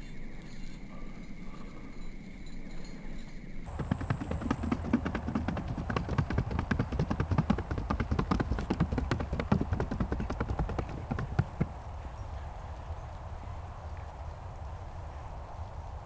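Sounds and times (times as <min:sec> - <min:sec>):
horse hooves on firm ground: 0:03.7 - 0:14.3.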